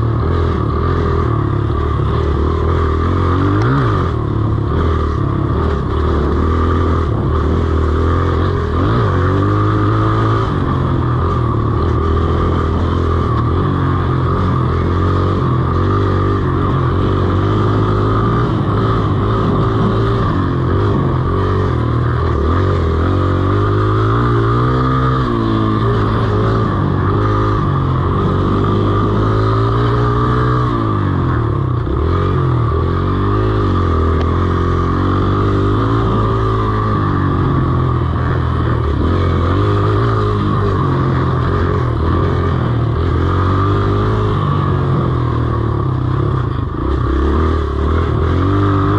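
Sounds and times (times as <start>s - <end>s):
dirt bike engine running: 0.0s - 48.9s.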